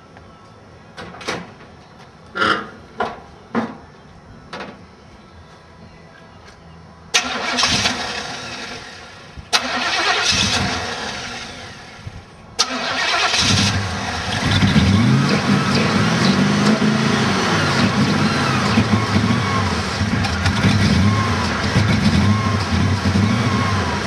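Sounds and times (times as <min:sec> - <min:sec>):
car engine cranking and running: 0:07.1 - 0:24.0.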